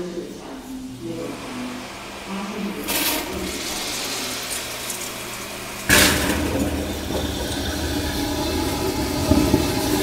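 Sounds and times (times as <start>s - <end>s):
water rinsing into toilet bowl: 2.8s - 10.0s.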